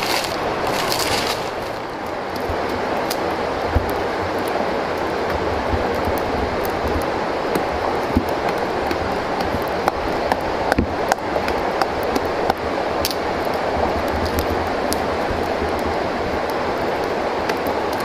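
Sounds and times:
machete blade shaving wood: 0.0s - 1.8s
steady rushing noise: 0.0s - 18.0s.

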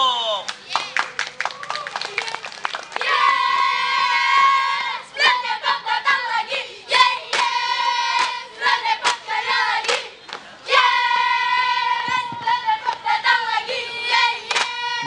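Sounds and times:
girls chanting in unison: 3.0s - 15.0s.

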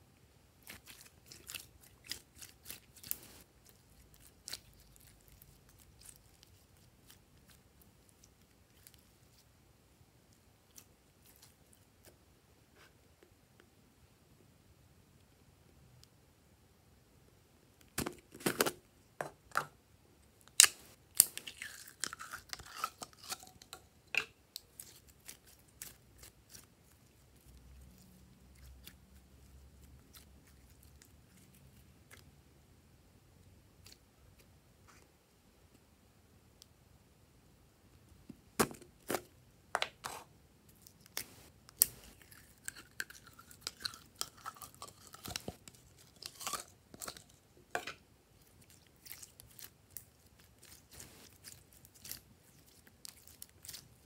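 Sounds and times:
faint sticky slime crackles: 0.6s - 9.5s, 24.5s - 32.3s, 40.7s - 47.4s, 48.3s - 54.0s.

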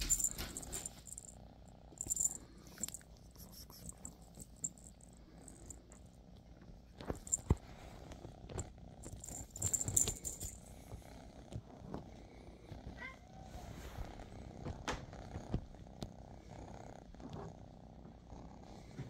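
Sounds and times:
feather wand toy rattling: 0.0s - 1.3s, 2.0s - 5.8s, 9.0s - 10.7s.

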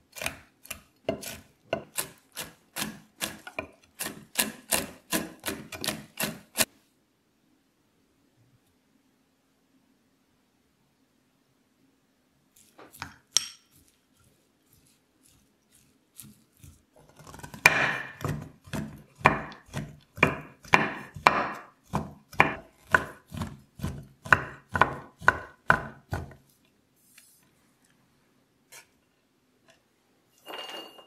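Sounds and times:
knife chopping on wooden board: 0.1s - 6.7s, 16.2s - 26.4s
spoon clinking in glass bowl: 30.4s - 31.0s.

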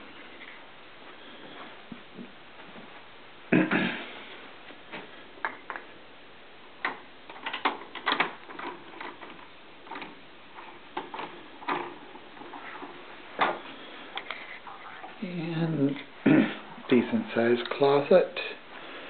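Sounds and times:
window blinds clicking and rattling: 7.3s - 13.1s.

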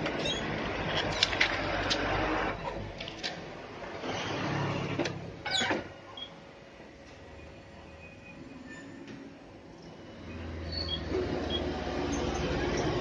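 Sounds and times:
squeaky rattle: 0.2s - 1.3s.

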